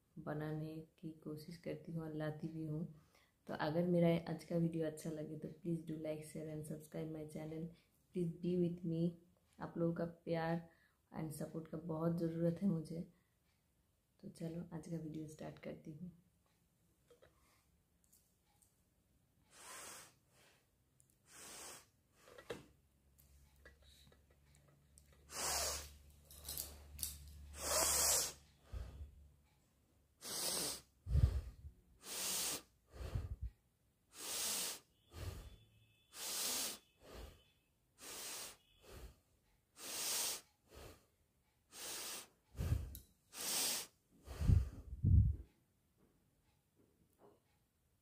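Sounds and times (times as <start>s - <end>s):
woman sniffing and breathing: 19.4s - 22.7s, 25.2s - 26.1s, 27.4s - 29.2s, 30.2s - 45.4s.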